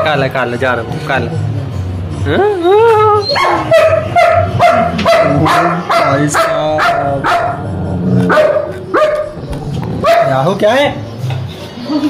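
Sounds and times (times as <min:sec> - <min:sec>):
dog growling and barking: 0:03.1 - 0:10.6.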